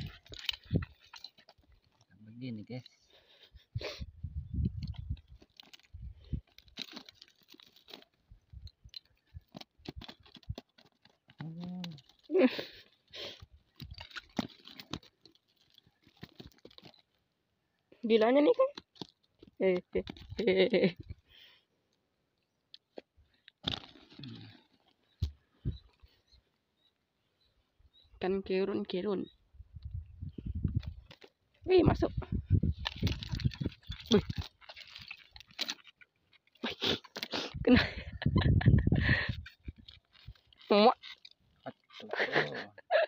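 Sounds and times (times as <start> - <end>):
net chain weights clicking on gravel: 0.0 - 3.0, 4.8 - 17.2, 18.0 - 21.0, 32.8 - 37.4, 39.4 - 42.6
crunching rustle: 4.6 - 17.4, 18.0 - 21.5, 23.3 - 26.2, 30.4 - 37.6, 38.4 - 42.7.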